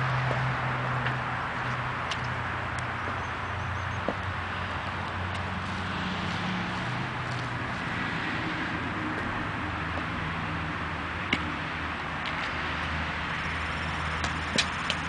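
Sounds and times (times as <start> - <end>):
boot kicking a ball on pavement: 0.0 - 2.4, 4.0 - 4.3, 9.9 - 10.2, 11.2 - 11.6, 14.1 - 15.0.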